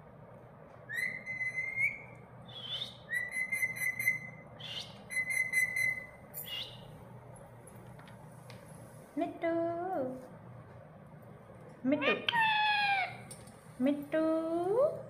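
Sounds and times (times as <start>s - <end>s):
parakeet whistling: 0.9s - 6.9s.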